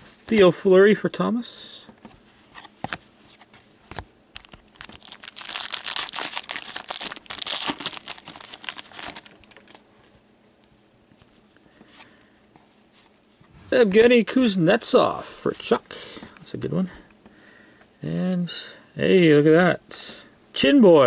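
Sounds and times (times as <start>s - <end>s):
foil wrapper tearing and crinkling: 4.4s - 9.8s.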